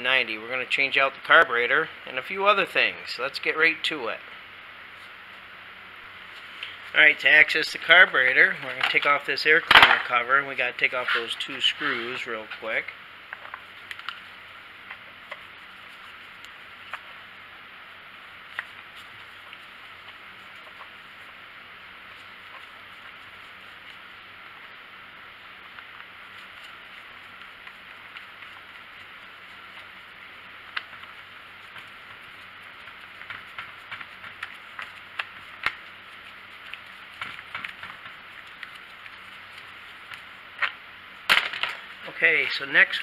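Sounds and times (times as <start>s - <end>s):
steady hiss: 0.0s - 43.0s.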